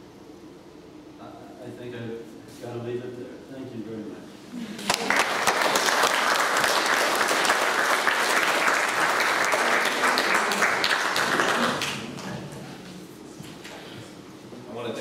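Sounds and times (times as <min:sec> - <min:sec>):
audience applauding: 0:04.8 - 0:12.6.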